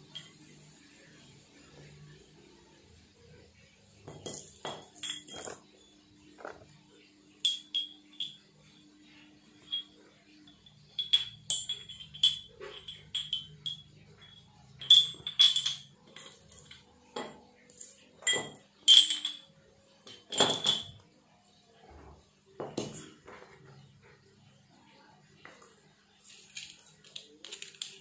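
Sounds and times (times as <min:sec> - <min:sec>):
ringing metal clinks: 0:04.0 - 0:06.6, 0:07.4 - 0:21.0.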